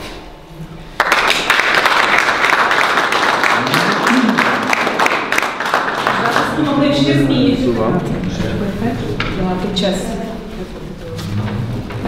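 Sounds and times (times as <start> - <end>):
audience clapping: 0.9 - 7.1.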